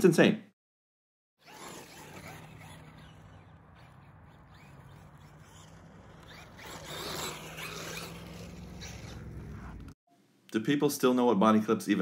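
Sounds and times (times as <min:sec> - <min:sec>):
toy truck tyres on gravel: 0:01.4 - 0:10.0.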